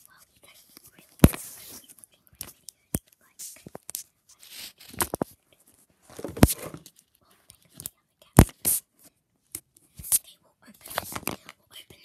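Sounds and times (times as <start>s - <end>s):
soft rustling and crinkling: 0.0s - 8.0s, 8.9s - 12.0s.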